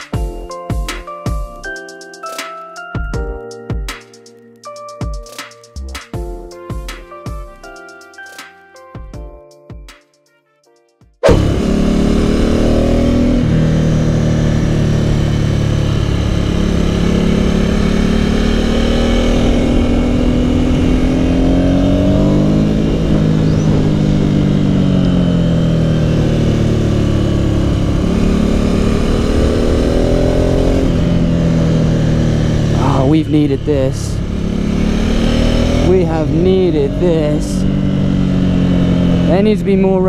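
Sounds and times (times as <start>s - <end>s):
motorcycle engine revving: 11.2s - 40.0s.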